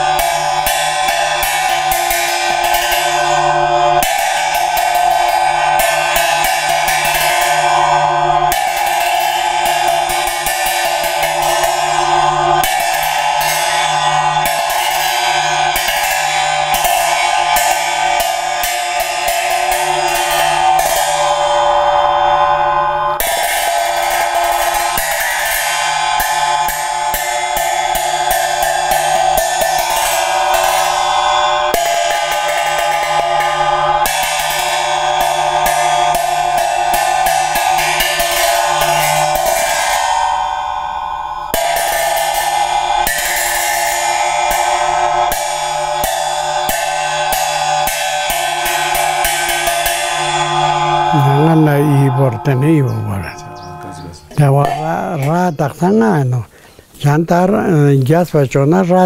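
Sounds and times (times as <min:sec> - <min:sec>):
ritual cymbals clashing and ringing: 0:00.0 - 0:59.0.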